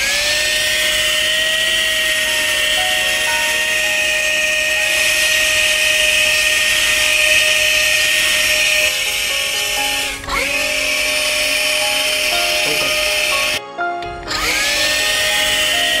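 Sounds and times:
handheld vacuum cleaner running: 0.0s - 13.6s, 14.3s - 16.0s.

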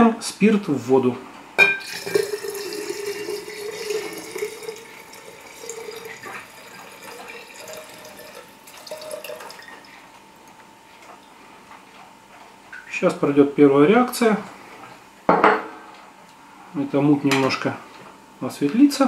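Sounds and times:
liquid trickling into glass jar: 1.8s - 10.1s.

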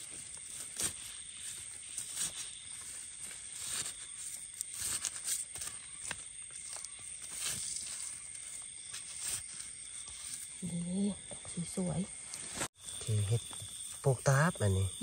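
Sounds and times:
knife scraping through soil: 0.0s - 10.6s.

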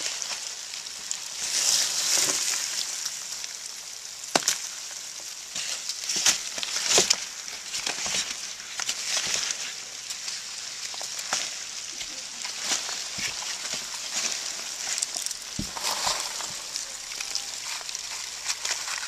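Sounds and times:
cardboard rustling and scraping: 5.6s - 10.5s, 11.2s - 19.0s.

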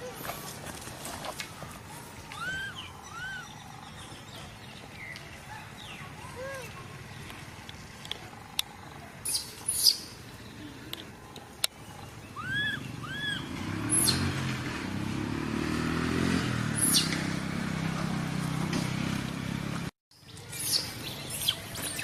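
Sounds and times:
rising and falling calls: 2.1s - 4.2s, 11.8s - 14.6s.

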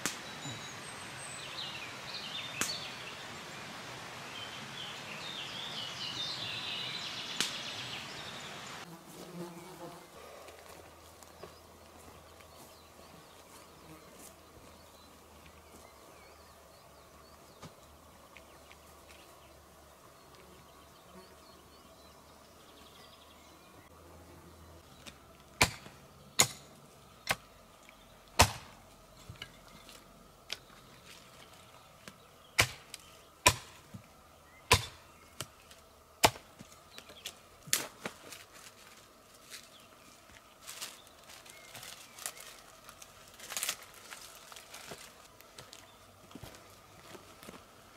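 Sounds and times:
faint outdoor background: 0.0s - 47.9s
axe chopping wood: 25.6s - 27.4s, 28.4s - 28.8s, 32.6s - 33.8s, 34.7s - 35.5s, 36.2s - 36.6s.

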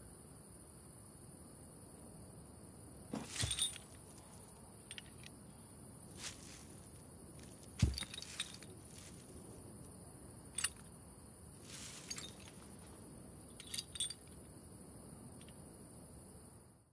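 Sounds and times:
faint steady hiss: 0.0s - 16.9s
light clicks and clinks: 3.2s - 5.4s, 7.8s - 9.2s, 10.5s - 10.9s, 11.7s - 12.9s, 13.5s - 14.5s, 15.4s - 15.6s
soft thump: 7.8s - 8.2s.

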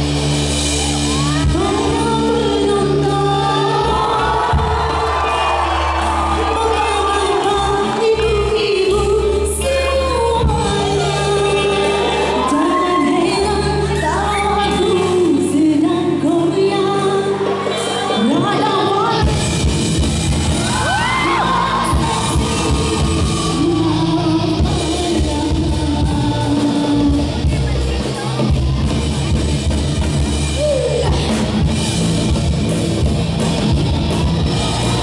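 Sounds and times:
bass guitar: 0.0s - 35.0s
drum kit: 0.0s - 35.0s
electric guitars: 0.0s - 35.0s
woman singing: 1.2s - 5.1s, 6.2s - 19.4s, 20.9s - 28.3s.

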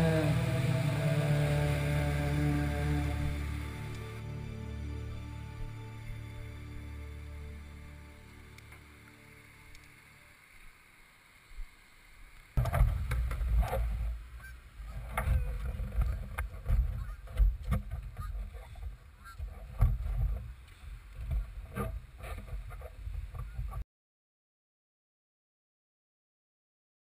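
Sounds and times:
knocking and rubbing on kayak: 14.9s - 20.6s, 21.2s - 23.8s.

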